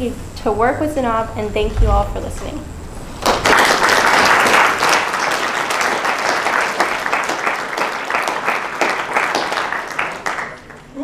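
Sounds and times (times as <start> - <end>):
audience applauding: 3.2 - 11.0.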